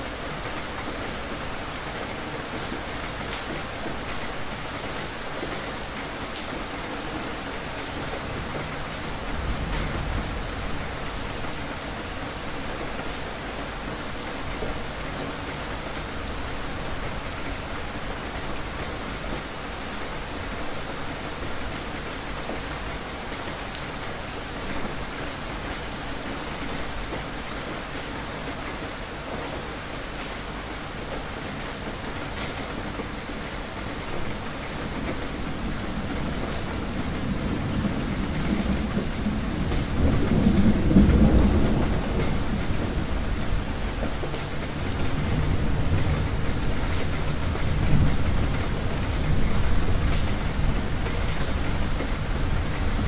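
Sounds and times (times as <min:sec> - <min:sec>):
heavy rain falling: 0:00.0 - 0:53.0
low rumble of thunder: 0:08.3 - 0:11.7, 0:34.9 - 0:53.0.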